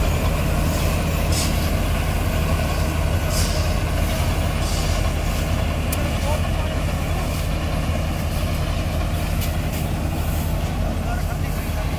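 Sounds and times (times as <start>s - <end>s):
diesel machinery engine hum: 0.0s - 11.9s
short hissing rushes: 0.6s - 5.7s.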